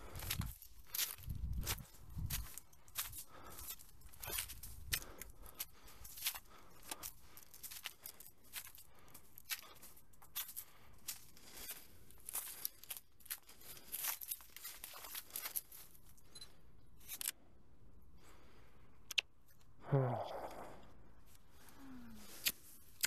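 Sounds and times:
footsteps crunching dry leaves: 0.0s - 16.0s.

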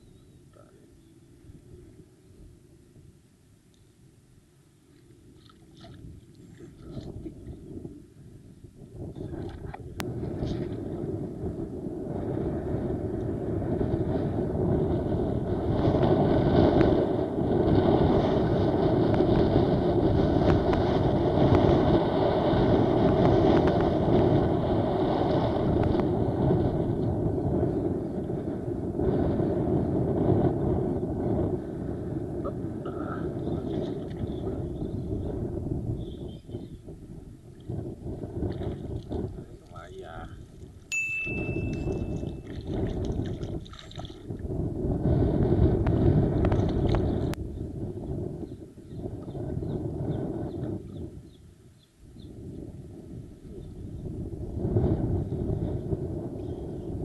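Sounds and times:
choppy sea water: 4.8s - 51.7s
wind buffeting microphone: 4.8s - 57.0s.

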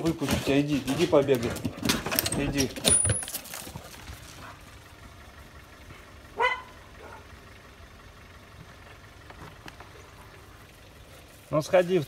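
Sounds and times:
dog barking: 6.4s - 7.3s.

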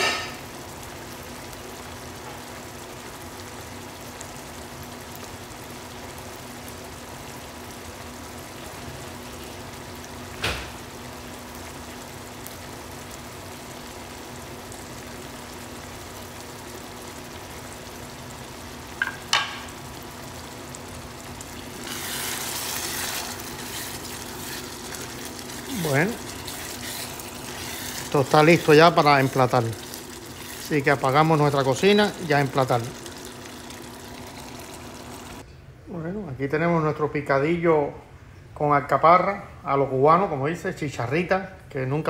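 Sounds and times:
sauce simmering and bubbling: 0.3s - 35.5s
wooden spatula stirring sauce: 21.7s - 31.1s.

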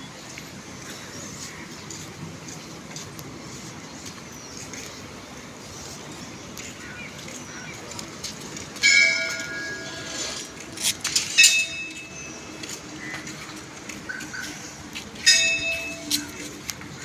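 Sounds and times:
temple bell ringing: 8.8s - 10.5s, 11.3s - 12.6s, 15.2s - 16.4s.

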